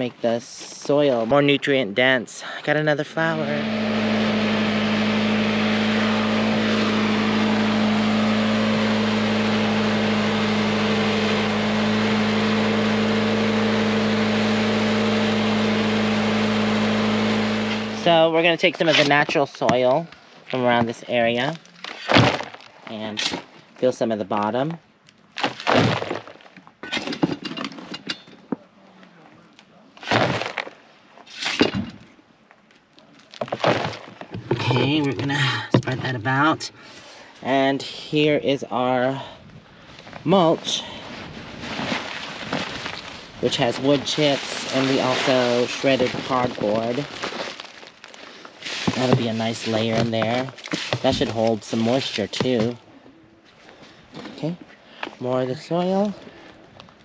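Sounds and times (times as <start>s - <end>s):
garden mulcher running: 2.7s - 24.7s, 25.4s - 26.4s, 30.0s - 30.7s, 33.3s - 52.9s
shovel scraping soil: 3.4s - 19.5s, 30.0s - 32.0s, 40.3s - 52.8s.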